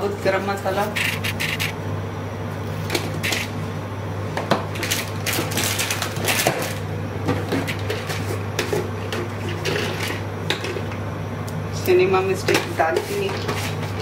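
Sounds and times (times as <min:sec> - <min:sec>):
steady low hum: 0:00.0 - 0:14.0
crackles and clicks of kitchen handling: 0:04.4 - 0:13.6.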